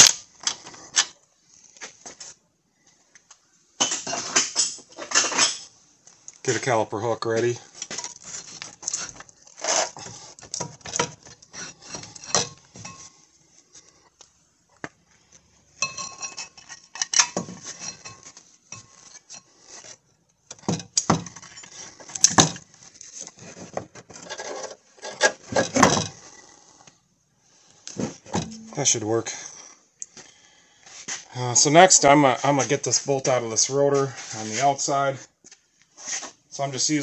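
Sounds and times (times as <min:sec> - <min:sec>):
metal clinks and scrapes: 0:03.8 - 0:05.8, 0:07.7 - 0:13.8, 0:15.8 - 0:20.1, 0:20.7 - 0:23.4.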